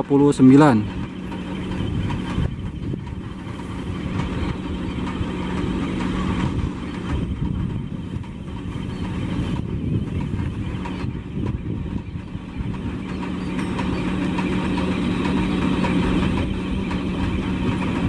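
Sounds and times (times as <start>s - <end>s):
diesel engine idling: 0.0s - 18.0s.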